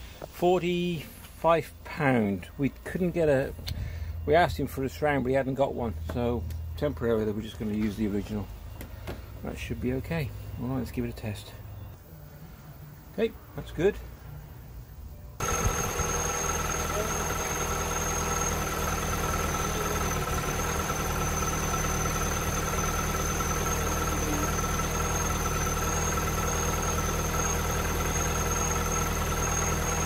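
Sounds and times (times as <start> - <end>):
car engine idling: 15.4 - 30.0
thin high whine: 15.4 - 30.0.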